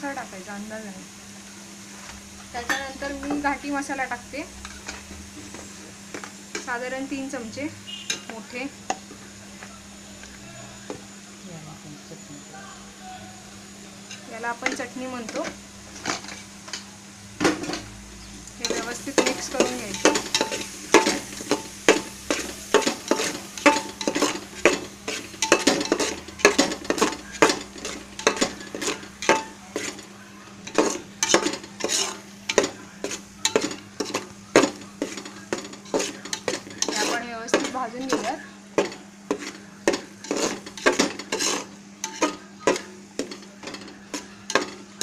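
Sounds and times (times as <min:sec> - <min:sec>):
metal spatula scraping a pot: 0:18.6 - 0:30.0, 0:30.6 - 0:44.8.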